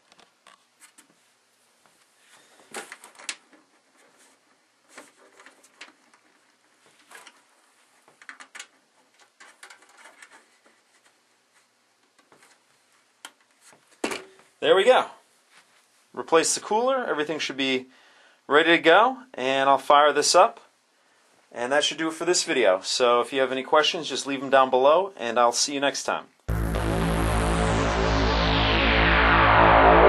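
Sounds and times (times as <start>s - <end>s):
hands handling computer case: 2.6s - 11.2s.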